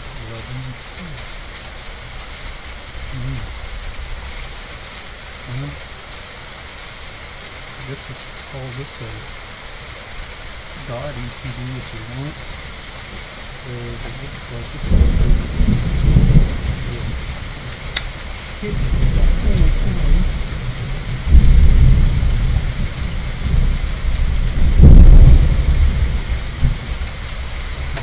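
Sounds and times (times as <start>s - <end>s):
steady rain: 0.0s - 28.0s
thunder rumbling: 13.6s - 28.0s.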